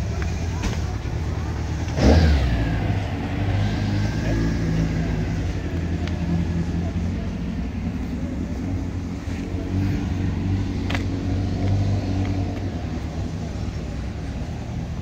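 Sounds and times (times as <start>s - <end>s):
car engine idling: 0.0s - 11.7s.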